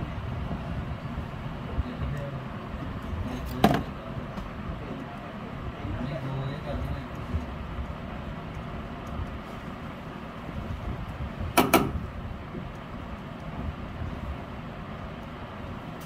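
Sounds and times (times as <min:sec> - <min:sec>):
low background rumble: 0:00.0 - 0:16.0
sharp knocks: 0:11.6 - 0:12.0.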